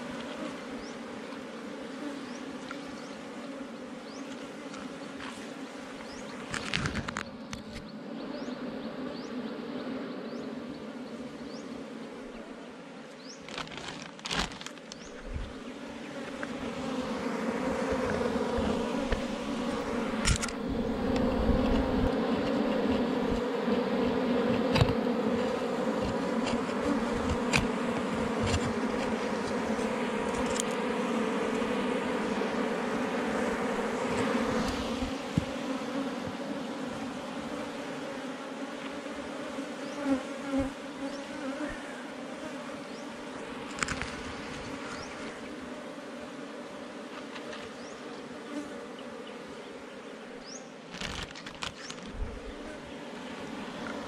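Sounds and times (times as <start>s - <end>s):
honeybees buzzing: 0.0s - 54.0s
knocks and scrapes of honeycomb: 4.2s - 8.0s, 13.4s - 15.6s, 16.2s - 32.0s, 33.3s - 37.6s, 43.4s - 45.4s, 47.0s - 47.8s, 50.9s - 52.8s.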